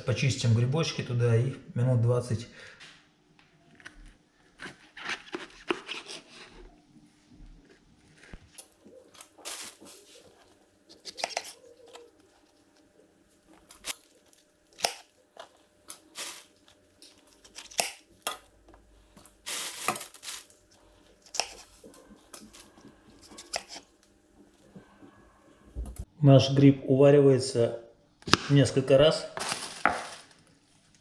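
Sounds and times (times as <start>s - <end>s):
knife cutting mushrooms on board: 10.9s - 12.1s, 21.2s - 23.9s.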